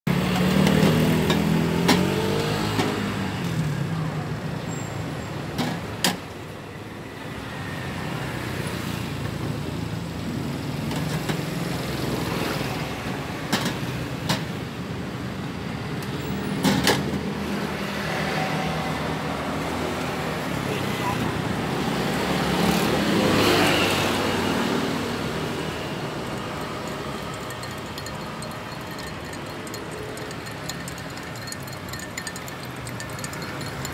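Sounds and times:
street traffic engines: 0.1 - 33.9
metal pots and glasses clinking: 26.0 - 33.9.

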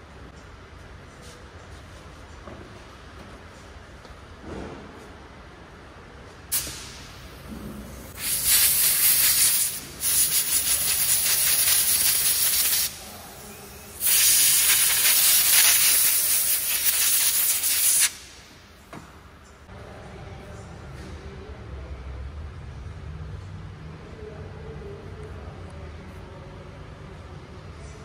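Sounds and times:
compressed-air blow gun hissing: 8.1 - 12.9.

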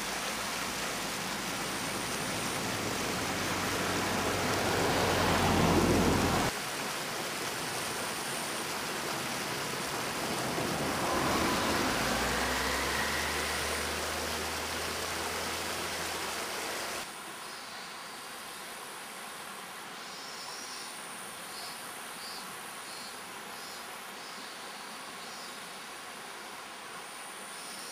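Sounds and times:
stream rushing over stones: 0.0 - 17.2
car passing: 0.1 - 6.5, 7.3 - 17.0.

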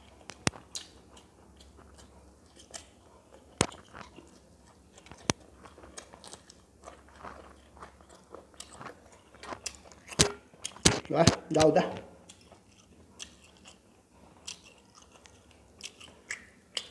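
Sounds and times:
wet mouth sounds: 0.0 - 4.4, 14.4 - 16.9
chewing food: 0.0 - 16.9.

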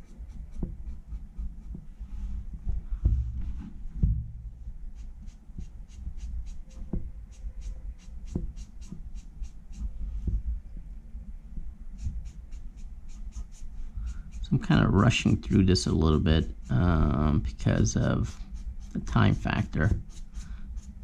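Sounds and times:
brush pen scratching on paper: 0.0 - 2.4, 4.9 - 10.4, 11.9 - 21.0
low rumble: 1.8 - 5.0
dull knocks: 2.6 - 4.6.

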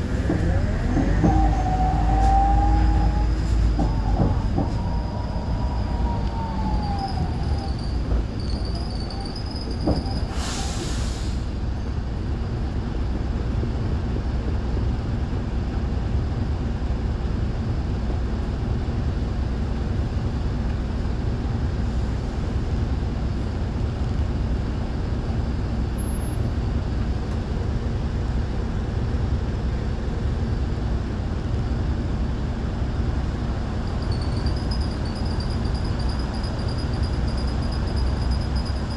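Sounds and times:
bus diesel engine running: 0.0 - 38.9
falling squeal: 0.4 - 11.2, 33.8 - 38.9
air brake hiss: 10.3 - 11.6.

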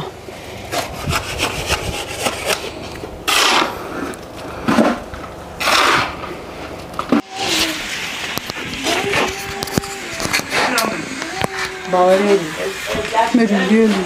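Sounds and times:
shovel scraping into sand: 0.7 - 5.0, 5.6 - 6.2.

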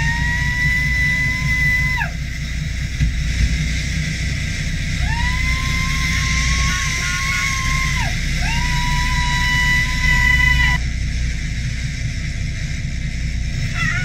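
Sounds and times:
fishing reel drag screaming: 0.0 - 2.2, 5.0 - 10.8, 13.7 - 14.0
low boat rumble: 0.0 - 14.0.

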